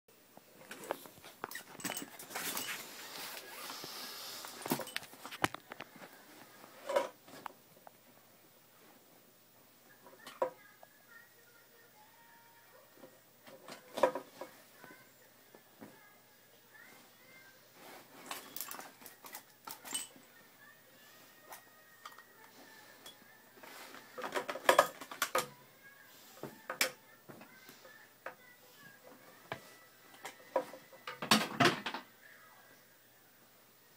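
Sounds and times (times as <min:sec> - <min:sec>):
plastic toy clicking and clattering: 0:24.2 - 0:25.5.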